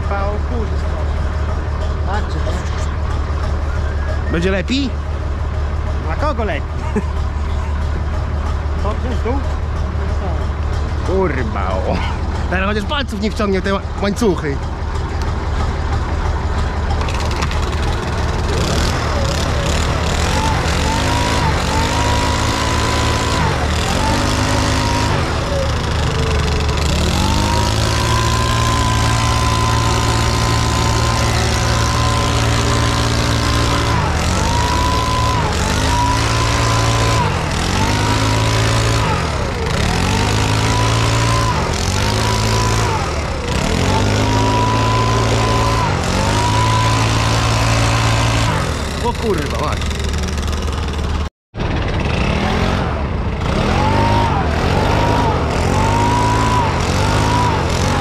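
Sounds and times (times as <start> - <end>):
diesel engine drone: 0.0 - 58.0
leaf blower revving: 17.0 - 58.0.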